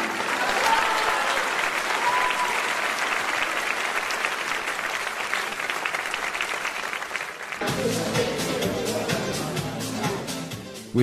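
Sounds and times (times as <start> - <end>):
crowd clapping: 0.0 - 8.0.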